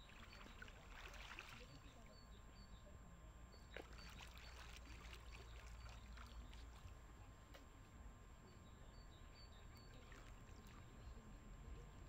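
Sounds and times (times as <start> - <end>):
small splashes of lake water: 0.0 - 2.2, 3.6 - 7.0, 9.8 - 11.2.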